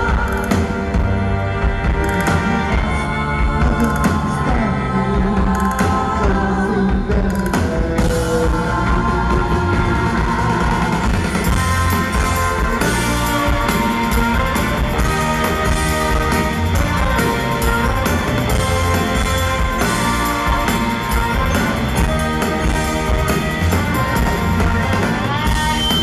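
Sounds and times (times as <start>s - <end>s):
drum kit: 0.0s - 26.0s
electric guitars: 0.0s - 26.0s
rock band playing: 0.0s - 26.0s
horn section: 8.8s - 26.0s.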